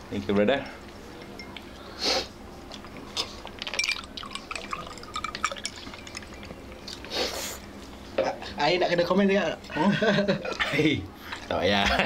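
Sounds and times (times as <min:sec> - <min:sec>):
drink pouring into a glass: 0:03.5 - 0:06.8.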